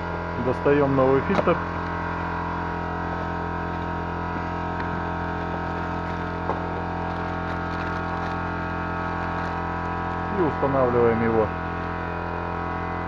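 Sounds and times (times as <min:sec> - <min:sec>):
steady electrical hum: 0:00.0 - 0:13.0
rustling of plastic wrap: 0:01.2 - 0:12.0
small clicks of packaging: 0:05.8 - 0:10.0.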